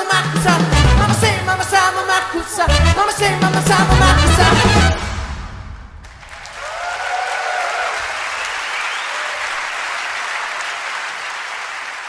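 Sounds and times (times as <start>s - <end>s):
audience cheering: 3.9s - 5.0s, 6.0s - 12.0s
audience applauding: 6.0s - 12.0s.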